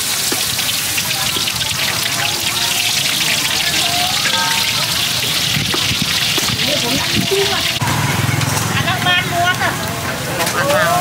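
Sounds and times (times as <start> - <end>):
food frying in hot oil: 0.0 - 8.6.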